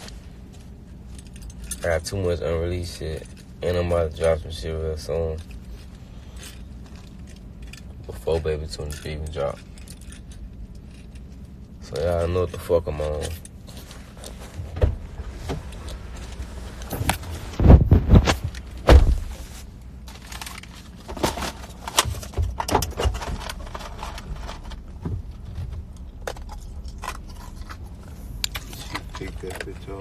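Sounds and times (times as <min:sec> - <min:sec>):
low car cabin hum: 0:00.0 - 0:30.0
metal chains jangling: 0:01.0 - 0:02.2, 0:05.2 - 0:11.5
bumps and rubs on microphone: 0:13.9 - 0:19.6.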